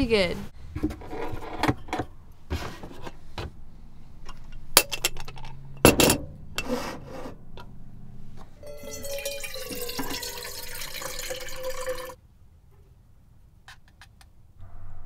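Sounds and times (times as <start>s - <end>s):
metal pot clinks and knocks: 8.6s - 12.2s.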